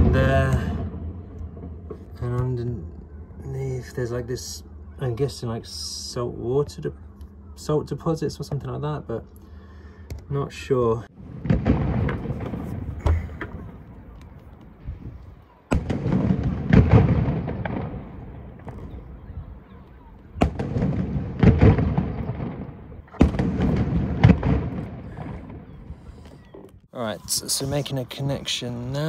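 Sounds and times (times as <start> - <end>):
fireworks booming: 0.0 - 2.5, 11.1 - 26.5
fireworks cracking: 11.3 - 14.8, 15.7 - 19.0, 20.4 - 25.9.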